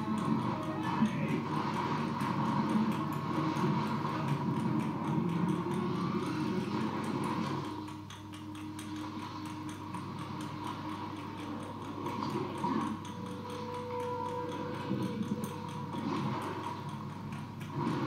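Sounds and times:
fast even ticking: 0.0 - 18.0
lo-fi film soundtrack through speakers: 0.0 - 18.0.

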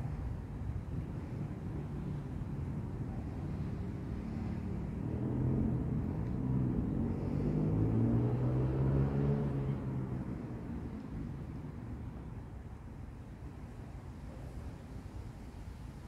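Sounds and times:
vehicle engine hum passing: 0.0 - 12.5.

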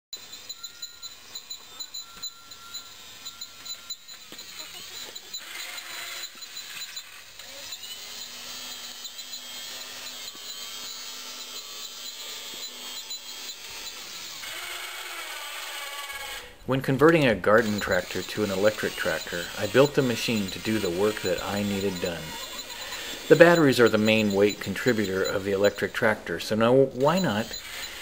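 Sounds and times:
electric motor whirring: 0.2 - 28.0.

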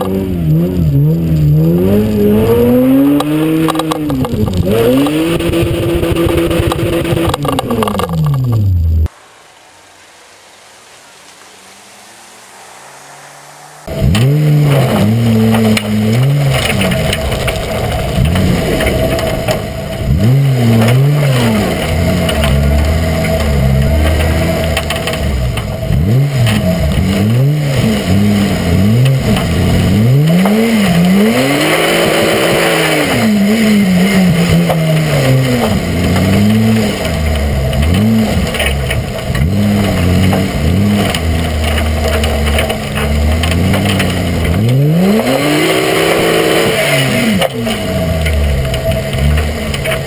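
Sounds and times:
car engine revving: 0.0 - 50.0
rushing hiss: 9.1 - 14.6.

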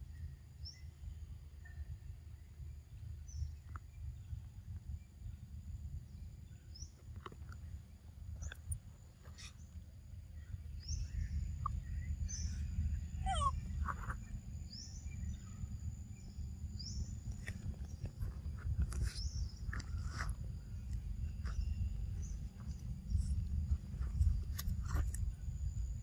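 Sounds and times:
insect drone: 0.0 - 26.0
high bird chirps: 10.8 - 15.6
sweeping bird call: 10.9 - 15.6.

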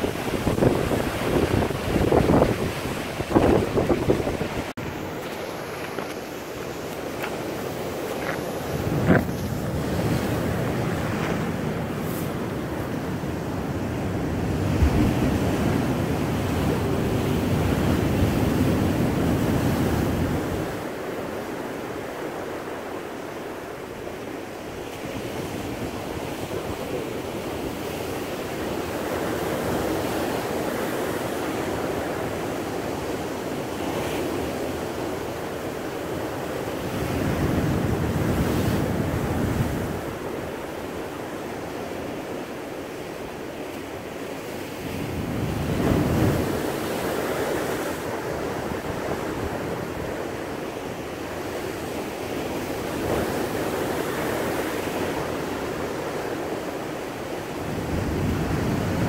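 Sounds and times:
wind noise on microphone: 0.0 - 20.9, 36.2 - 40.7, 44.6 - 50.5, 57.6 - 59.0
surf washing over rocks: 0.0 - 59.0.

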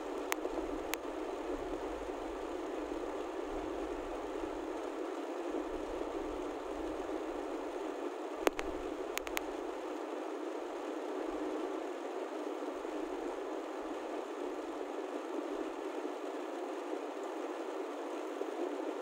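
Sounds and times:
sharp clicks: 8.5 - 9.5.

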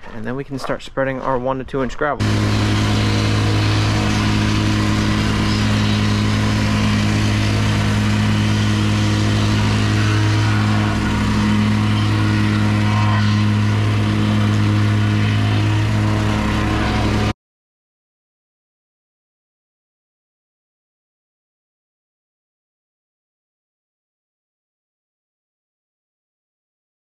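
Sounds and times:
compactor running: 2.2 - 17.3.

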